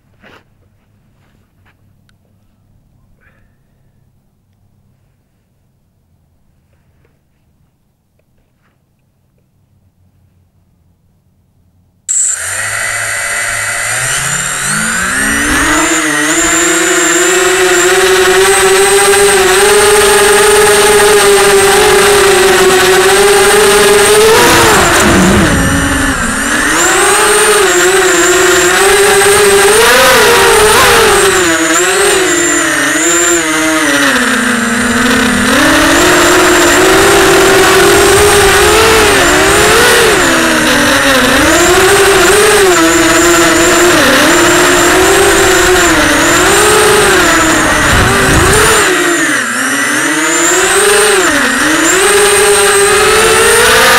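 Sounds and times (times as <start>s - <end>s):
quadcopter motors buzzing whine: 12.1s - 53.9s.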